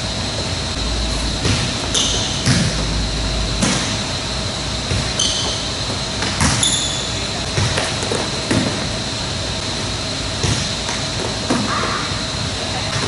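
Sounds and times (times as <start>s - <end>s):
steady background hum: 0.0s - 13.0s
sneakers squeaking on court floor: 5.2s - 5.7s, 6.4s - 7.8s.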